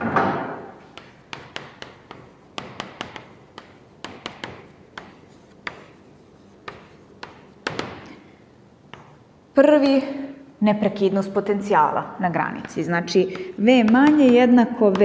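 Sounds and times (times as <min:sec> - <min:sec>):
chalk tapping on a blackboard: 0:00.8 - 0:08.2, 0:08.9 - 0:09.2, 0:13.3 - 0:15.0.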